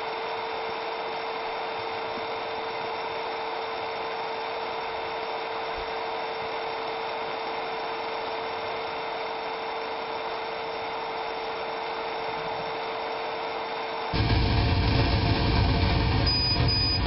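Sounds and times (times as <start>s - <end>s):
constant mid-pitched whine: 0.0s - 17.0s
laser engraver whir and hiss: 0.0s - 17.0s.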